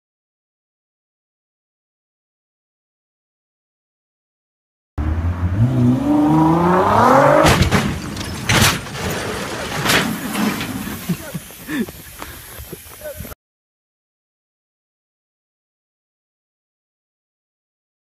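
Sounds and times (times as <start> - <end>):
car engine revving hard: 5.0 - 7.8
car crash impacts: 6.2 - 11.4
quiet scattered sounds: 7.4 - 13.4.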